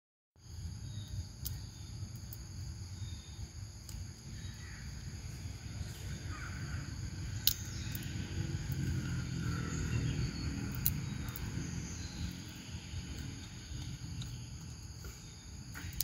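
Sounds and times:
high-pitched insect drone: 0.5s - 16.0s
faint clicks: 1.4s - 2.4s
faint cawing bird calls: 4.3s - 8.1s.

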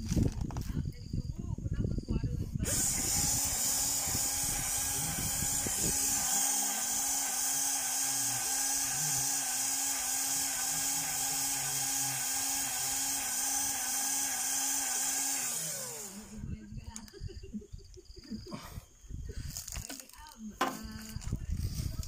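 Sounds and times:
grease gun motor whirring: 2.6s - 17.2s.

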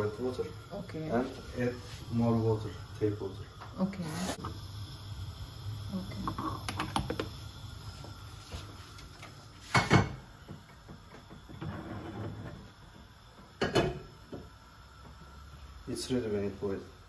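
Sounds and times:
loud clunk of teapot: 9.7s - 10.2s, 13.6s - 14.0s.

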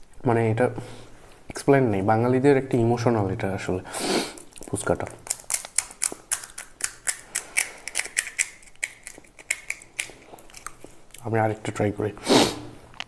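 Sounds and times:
crisp shells crackling: 4.4s - 11.3s.

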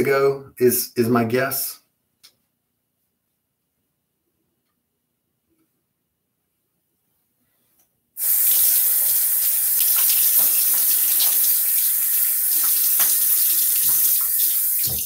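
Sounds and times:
tap water running into basin: 8.2s - 15.0s
water splashing: 8.2s - 15.0s.

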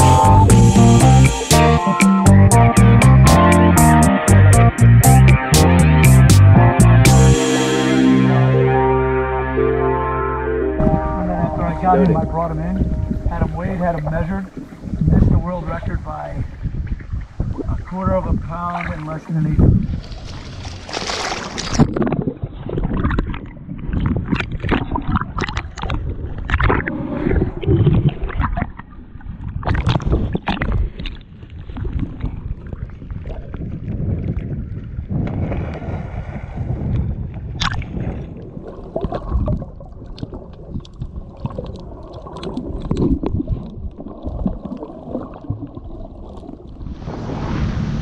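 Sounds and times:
muffled underwater water sloshing: 10.8s - 48.0s
knocks and splashes: 19.7s - 26.9s.

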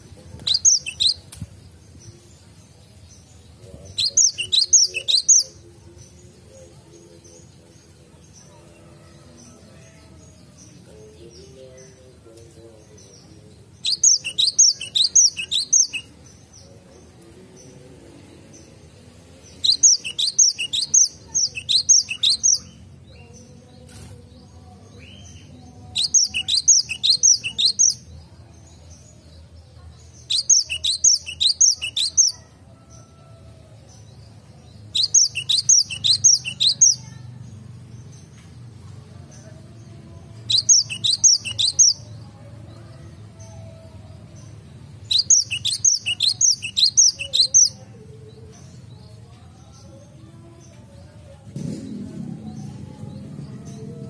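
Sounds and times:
bird singing rapid high notes: 34.9s - 37.1s, 40.5s - 42.0s, 45.1s - 47.7s.

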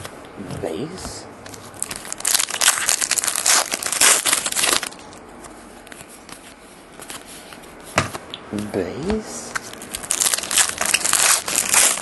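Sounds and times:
cards rustling: 0.0s - 7.7s, 9.0s - 12.0s
foil wrapper crinkling: 1.7s - 5.1s, 9.7s - 12.0s.

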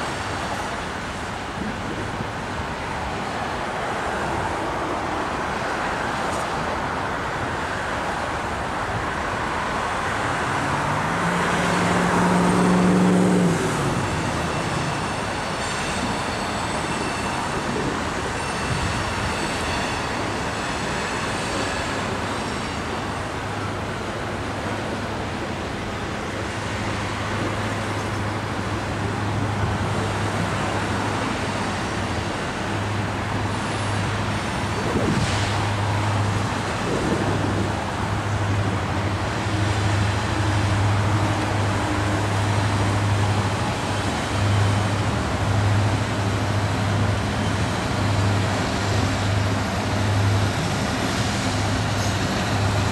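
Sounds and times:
city traffic noise: 0.0s - 52.9s
train cars rumbling on rails: 0.0s - 52.9s.

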